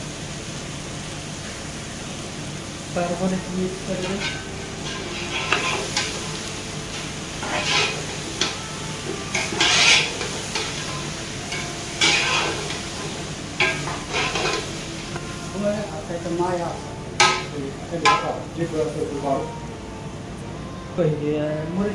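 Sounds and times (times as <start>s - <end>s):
steady hiss: 0.0s - 19.6s
utensil scraping metal pot: 4.0s - 6.2s, 7.4s - 8.5s, 9.3s - 12.8s.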